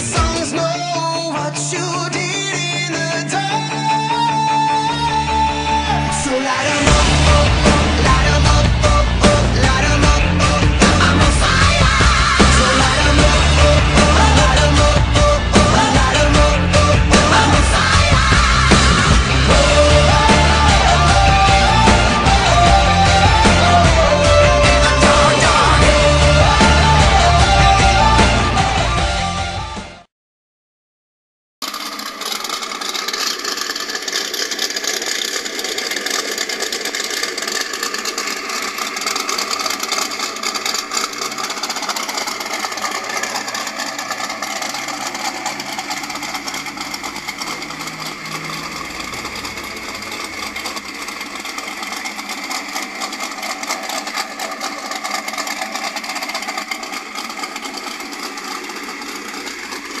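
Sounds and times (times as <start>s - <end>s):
car engine idling: 0.0s - 30.0s, 31.6s - 60.0s.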